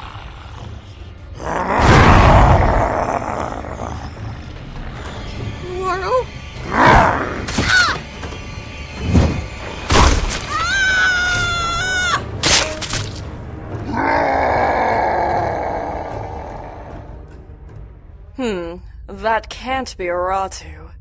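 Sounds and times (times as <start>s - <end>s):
harsh growling roar: 0.0s - 4.6s, 13.8s - 17.2s.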